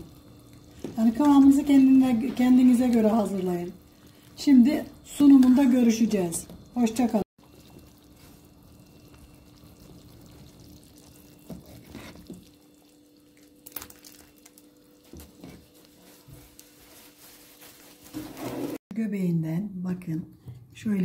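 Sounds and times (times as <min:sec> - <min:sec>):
liquid splashing and dripping: 0:12.2 - 0:14.8.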